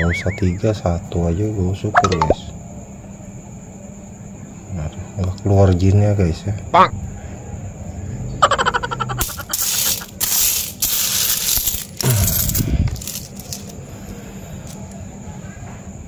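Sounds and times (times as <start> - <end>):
coins clinking: 9.1 - 13.8.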